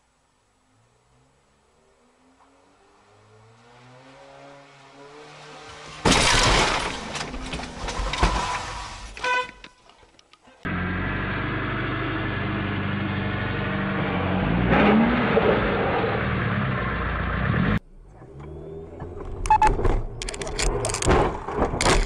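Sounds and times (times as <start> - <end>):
car passing close: 1.1 - 9.1
car engine revving: 10.7 - 20.8.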